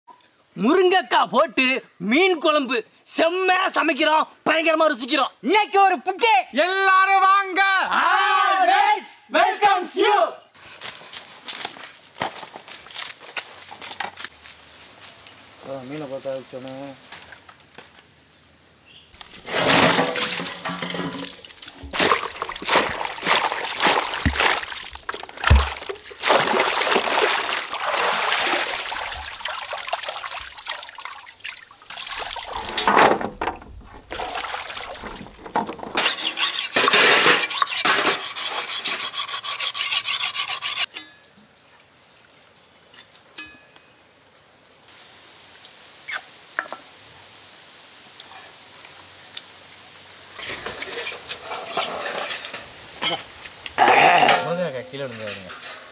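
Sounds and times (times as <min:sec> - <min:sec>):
water pouring and splashing: 0:19.2 - 0:38.1.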